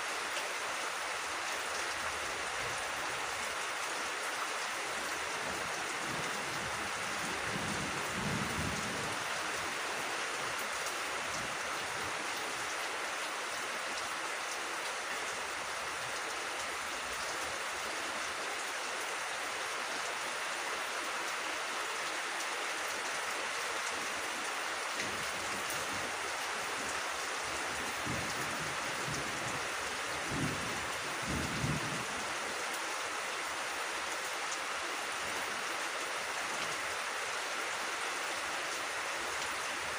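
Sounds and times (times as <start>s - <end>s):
rain on leaves and grass: 0.0s - 39.9s.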